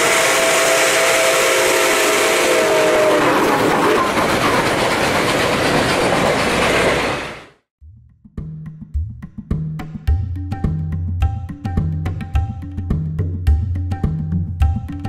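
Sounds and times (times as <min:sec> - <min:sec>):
steam locomotive chime whistle: 0:00.0 - 0:03.6
train rolling past: 0:00.0 - 0:07.6.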